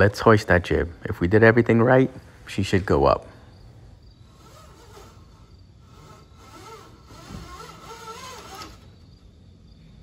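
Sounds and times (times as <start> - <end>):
wavering squeak from rig: 6.0 - 9.0.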